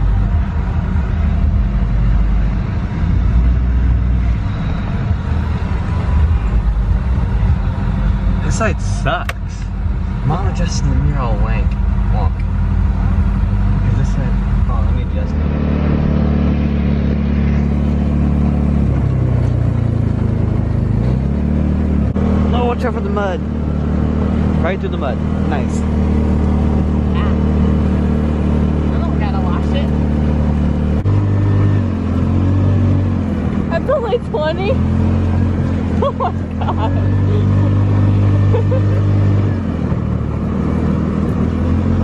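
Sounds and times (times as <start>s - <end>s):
pickup truck engine rumble: 0.0s - 42.0s
road noise: 0.0s - 42.0s.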